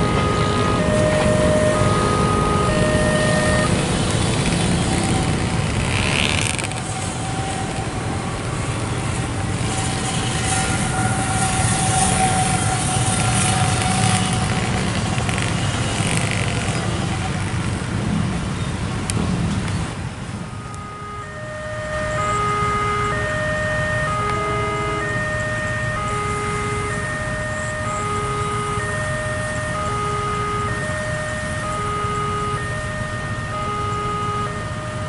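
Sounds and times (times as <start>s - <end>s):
long steady tone: 0.0s - 16.0s, 20.5s - 35.0s
horn blasts: 0.0s - 16.2s, 20.5s - 35.0s
motorcycle engines idling: 0.0s - 18.1s.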